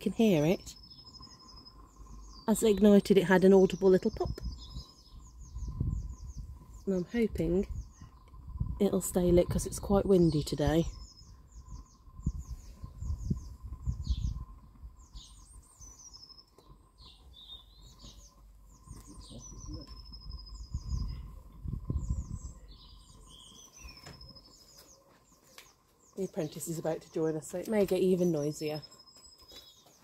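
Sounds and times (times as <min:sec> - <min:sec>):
songbird chirping: 0:00.0 - 0:30.0
wind buffeting microphone: 0:01.1 - 0:24.5.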